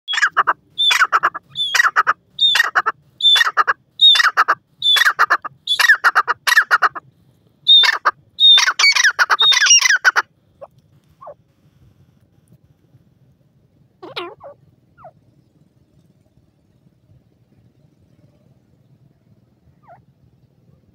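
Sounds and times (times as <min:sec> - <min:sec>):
francolin calling: 0:00.1 - 0:07.0, 0:07.7 - 0:11.4, 0:14.0 - 0:15.6, 0:18.0 - 0:20.2.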